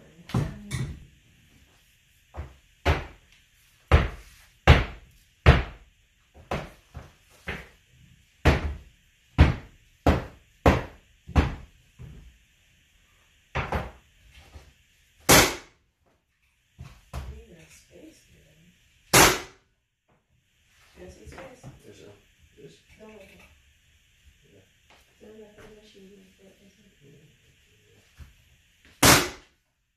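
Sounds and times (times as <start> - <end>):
pneumatic nailer shots: 15.2 - 15.8, 19.1 - 19.6, 29.0 - 29.5.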